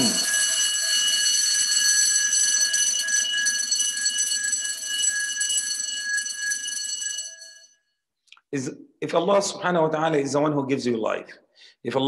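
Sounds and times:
high-pitched electronic alarm tone: 0.0s - 6.7s.

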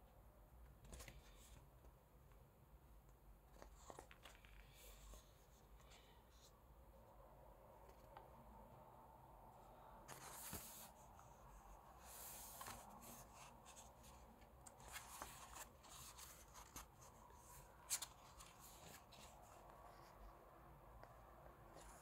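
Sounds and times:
book pages turning: 3.5s - 6.1s, 10.1s - 11.4s, 12.0s - 20.2s.

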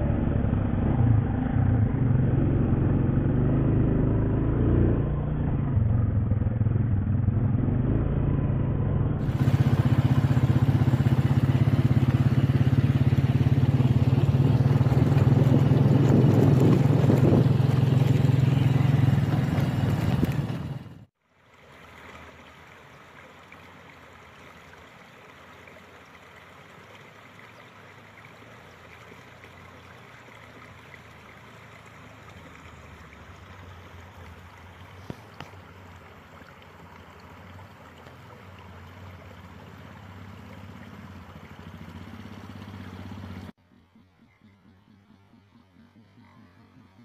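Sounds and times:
motorcycle engine running: 0.0s - 21.1s, 39.4s - 47.0s
stream running over rocks: 9.2s - 43.7s.

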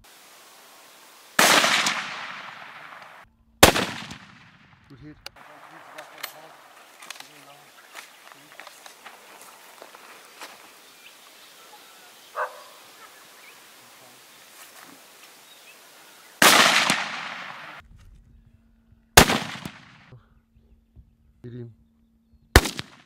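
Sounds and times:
faint bush background: 0.0s - 23.0s
rifle shots with rolling echo: 1.4s - 7.6s, 16.4s - 17.8s, 19.2s - 20.1s, 22.6s - 23.0s.

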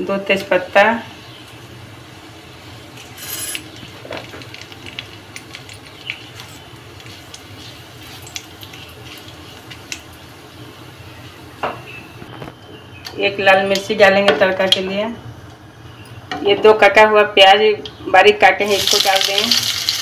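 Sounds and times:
spices sizzling in hot oil: 1.2s - 12.0s, 18.6s - 20.0s.

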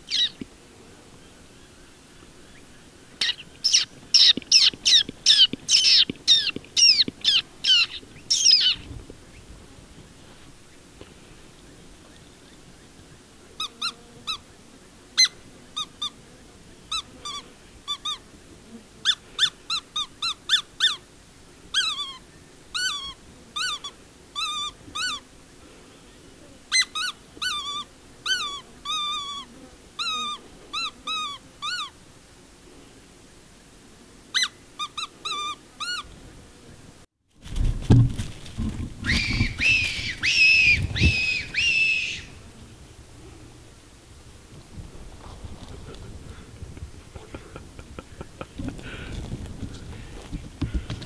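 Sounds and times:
predator whistle squealing: 39.0s - 42.4s.

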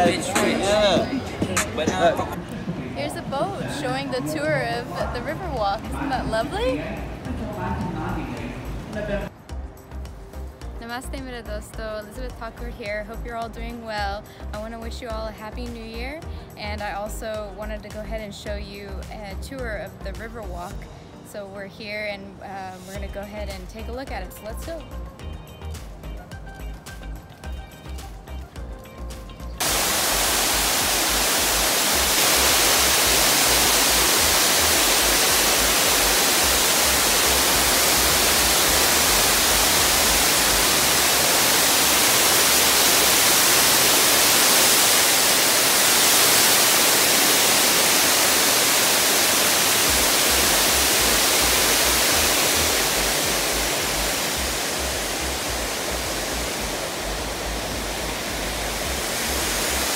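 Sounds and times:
waterfall rushing: 0.0s - 9.3s, 29.6s - 59.9s.

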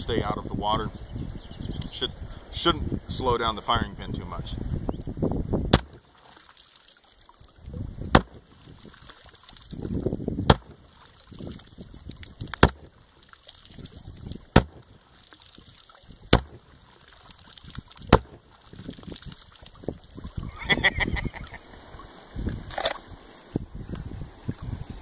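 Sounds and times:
underwater pistol shots: 5.6s - 20.4s
water sloshing: 5.7s - 23.4s
water splashing: 5.7s - 23.4s.

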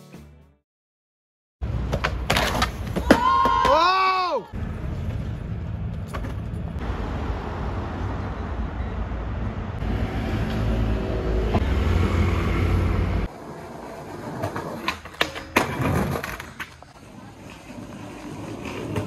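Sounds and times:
road traffic rumble: 4.5s - 14.6s.

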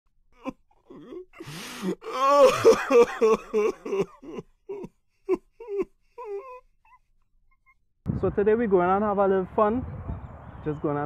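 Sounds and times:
person groaning cries: 0.4s - 6.7s
breathy vocal rasp: 0.7s - 2.7s.

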